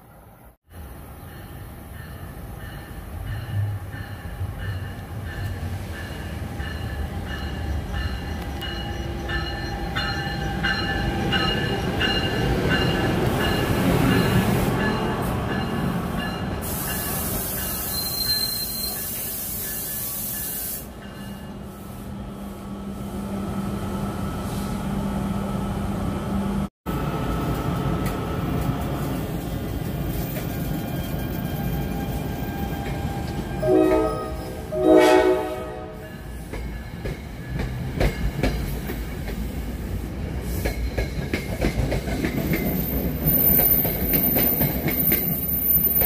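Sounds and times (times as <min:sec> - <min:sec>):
wheel squeal: 0:17.6 - 0:20.8.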